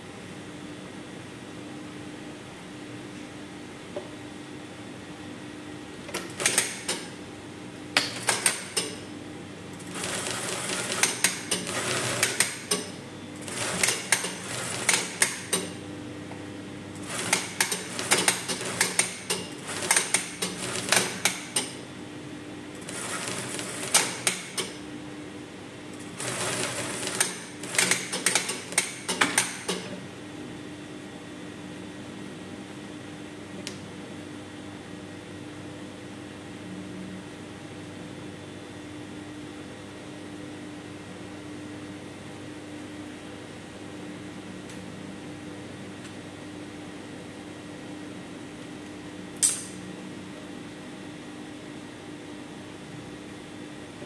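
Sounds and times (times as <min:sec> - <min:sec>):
sewing machine stitching: 0:09.8 - 0:12.8, 0:13.4 - 0:15.5, 0:22.8 - 0:24.6, 0:26.0 - 0:29.8
sewing machine clicks: 0:17.0 - 0:21.8, 0:26.2 - 0:29.9.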